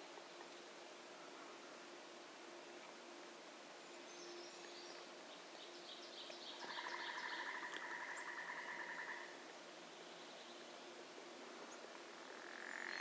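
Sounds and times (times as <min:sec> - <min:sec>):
faint bird song: 0:00.0 - 0:13.0.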